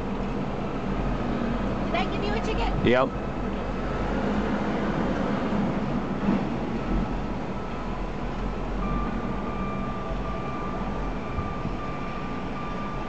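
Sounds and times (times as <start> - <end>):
heavy machinery engine running: 0.0 - 13.0.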